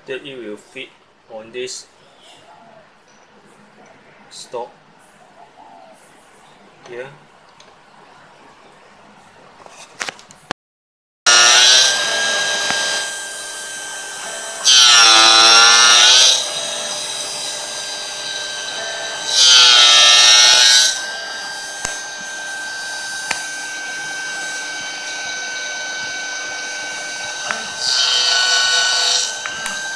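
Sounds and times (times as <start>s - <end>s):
gear cutter cutting brass: 11.3s - 29.9s
spindle whine: 11.3s - 29.9s.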